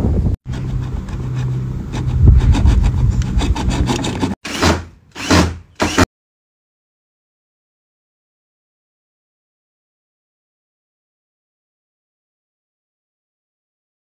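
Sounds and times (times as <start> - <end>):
hacksaw cutting plastic: 0.5 - 6.1
cordless drill bursts: 4.4 - 6.1.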